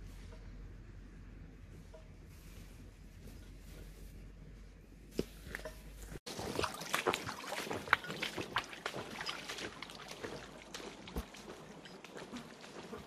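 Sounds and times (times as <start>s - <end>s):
boots splashing through stream: 6.3s - 13.0s.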